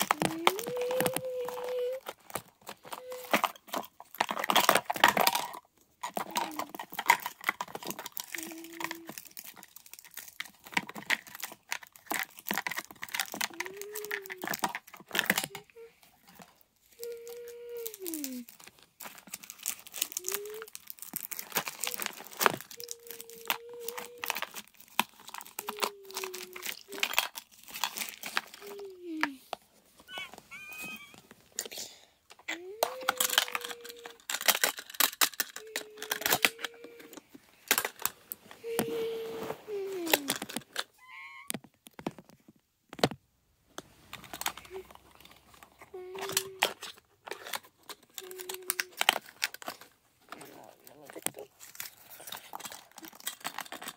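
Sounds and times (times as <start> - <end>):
small plastic pieces clicking: 0.0 - 29.4, 30.1 - 38.2, 40.0 - 43.2, 44.1 - 53.9
plastic and paper crinkling: 0.0 - 53.9
rustling handling noise: 0.0 - 53.9
faint held tone: 30.1 - 31.2.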